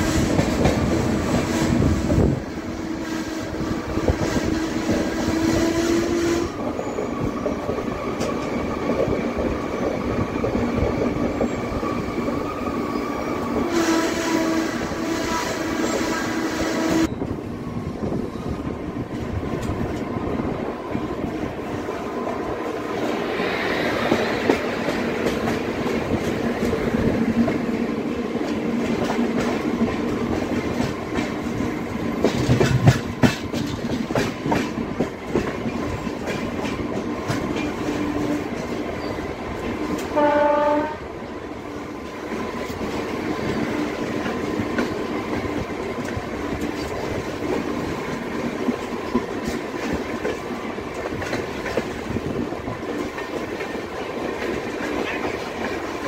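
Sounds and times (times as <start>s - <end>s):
train wheels rumbling: 0.0s - 56.0s
train horn: 2.7s - 6.6s, 13.6s - 17.1s, 40.0s - 41.2s.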